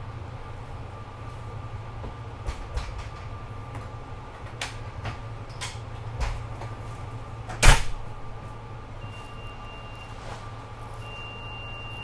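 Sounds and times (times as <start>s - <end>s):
low equipment hum: 0.0s - 12.0s
faint high tone: 11.0s - 12.0s.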